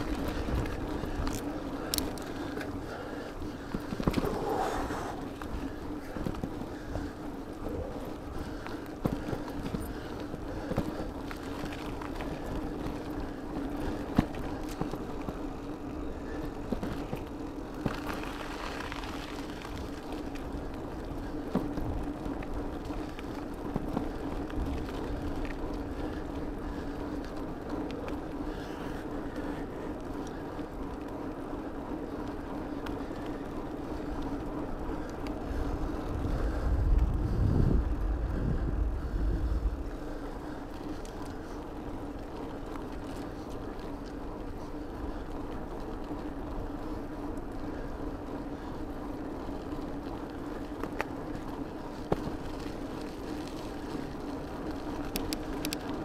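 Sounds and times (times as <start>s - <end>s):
bicycle knocks and rattles: 0.0s - 28.8s, 49.3s - 56.0s
wind buffeting microphone: 0.0s - 30.0s, 30.6s - 56.0s
bicycle tyres rolling on asphalt: 0.0s - 56.0s.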